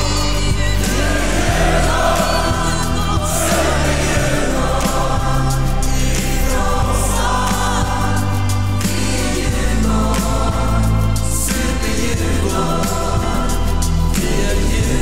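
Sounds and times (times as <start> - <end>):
backing music with deep bass: 0.0 - 15.0
gospel choir singing: 0.0 - 15.0.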